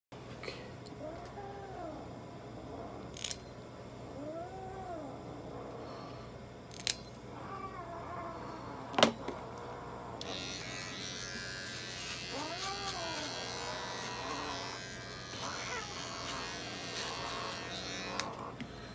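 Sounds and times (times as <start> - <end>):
electric nail trimmer buzzing: 3.0 - 3.5, 6.7 - 7.2, 10.2 - 18.9
nail clippers clicking: 6.7 - 7.2, 10.2 - 18.4.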